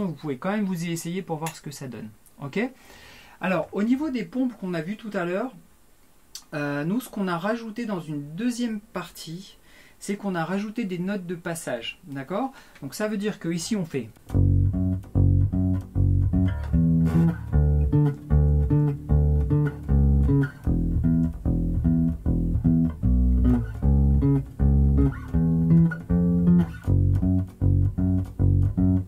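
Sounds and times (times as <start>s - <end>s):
electric bass guitar plucked notes: 14.3s - 29.0s.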